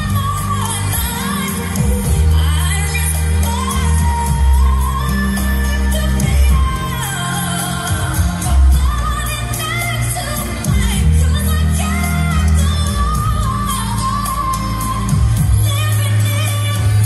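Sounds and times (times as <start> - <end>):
pop song with singing: 0.0 - 17.0.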